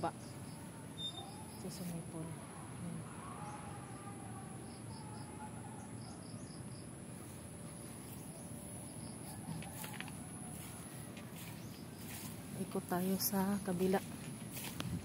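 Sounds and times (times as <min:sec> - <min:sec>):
insects trilling: 0:00.0 - 0:02.2, 0:02.9 - 0:15.0.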